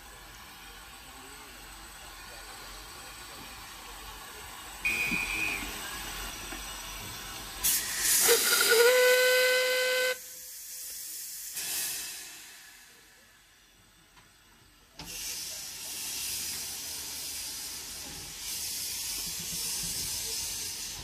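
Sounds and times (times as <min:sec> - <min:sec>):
rush of steam: 0:00.0 - 0:13.8, 0:15.0 - 0:21.0
steam hissing: 0:00.0 - 0:13.8, 0:15.0 - 0:21.0
steam locomotive whistle: 0:04.8 - 0:05.9, 0:07.7 - 0:10.4.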